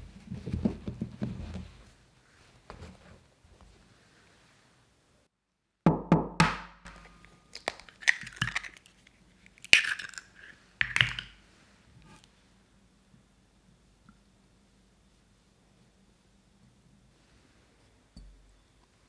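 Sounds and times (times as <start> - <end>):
eggshell crackling: 7.2 - 11.4.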